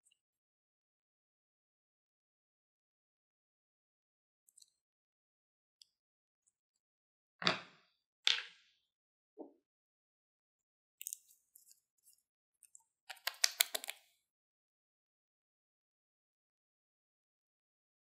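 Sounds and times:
bottle cap twisting clicks: 13.1 - 14.0.

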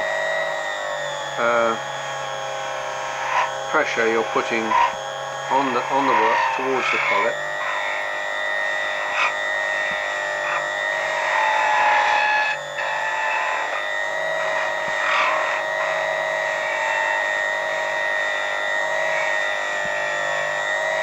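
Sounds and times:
lathe whining: 0.0 - 21.0
graver scraping steel: 3.1 - 17.4.

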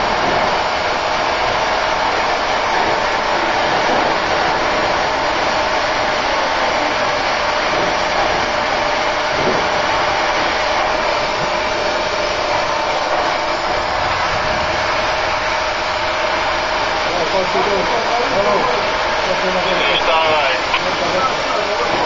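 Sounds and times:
mid-pitched hum: 0.0 - 22.0.

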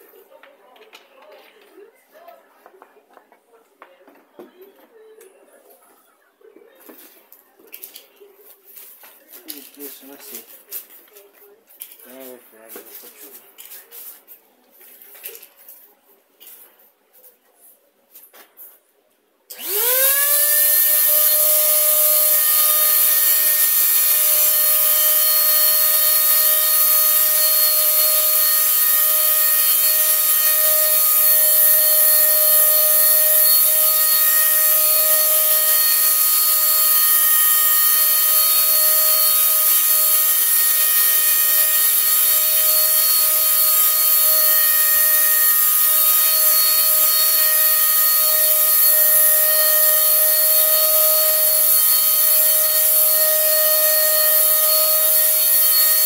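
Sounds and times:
spray gun motor whine: 19.5 - 56.0.

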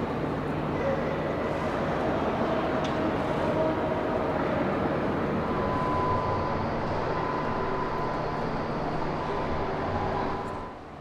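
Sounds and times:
rumble and hiss in large hall: 0.0 - 11.0
faint steady tone: 5.3 - 11.0.

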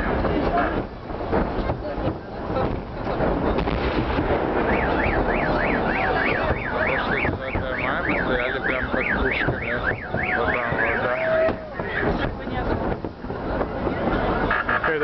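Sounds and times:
crowd noise: 0.0 - 15.0
fireworks rumble: 0.0 - 15.0
car alarm wailing: 4.6 - 12.0, 14.5 - 14.9.

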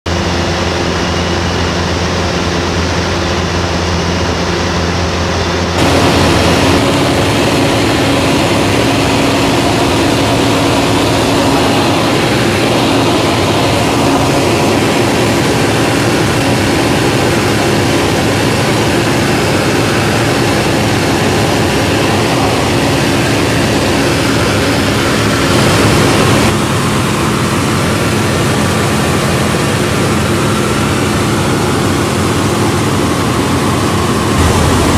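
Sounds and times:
light aircraft engine drone: 0.1 - 34.9
air rushing past: 34.4 - 34.9.

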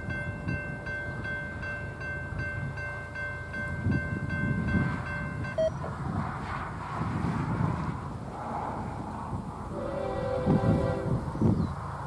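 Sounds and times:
railroad crossing bell ringing: 0.0 - 5.8
freight train rumble: 0.0 - 12.0
brief tone: 5.5 - 5.8.

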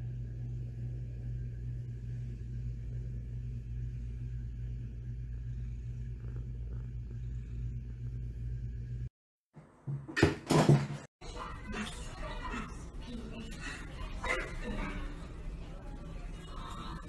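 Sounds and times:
cat purring: 2.2 - 9.1.

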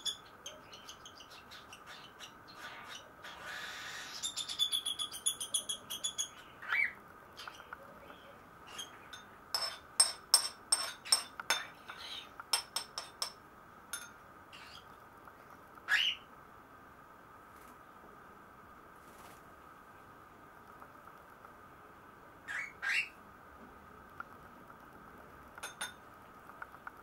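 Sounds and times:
baby cockatiels calling: 1.6 - 7.0, 15.9 - 16.2, 22.5 - 23.2.

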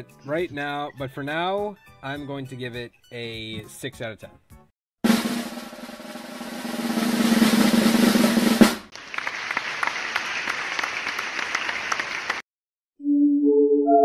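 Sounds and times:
drum roll ending on sharp hit: 5.0 - 8.9.

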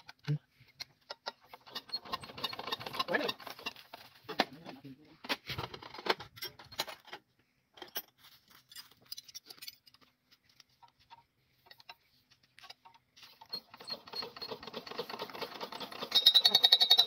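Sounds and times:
metallic clicks and clinks: 7.8 - 12.0, 15.5 - 17.0.

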